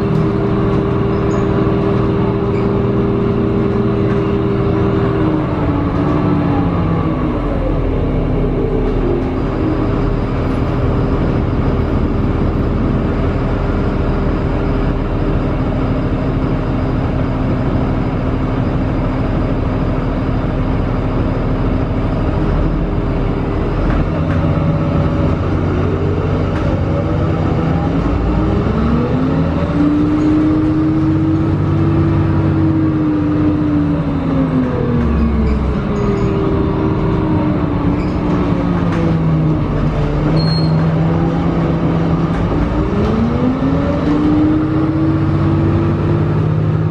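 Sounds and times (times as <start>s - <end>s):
bus engine running: 0.0s - 46.9s
rising and falling whine: 24.5s - 46.9s.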